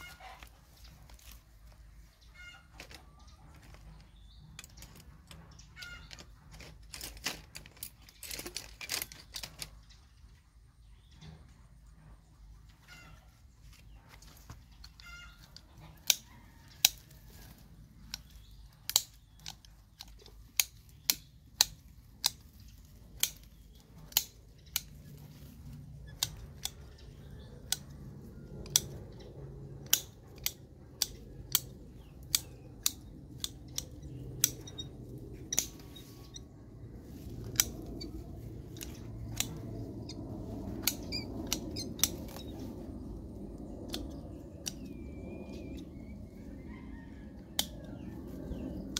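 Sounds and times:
pruning shears snipping branches: 13.8 - 46.6.

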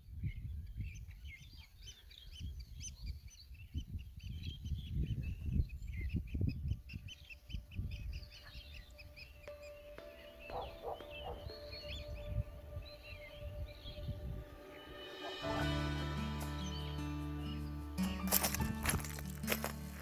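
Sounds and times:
wind rumbling on microphone: 0.0 - 9.4, 11.3 - 15.5
birds chirping: 0.0 - 20.0.

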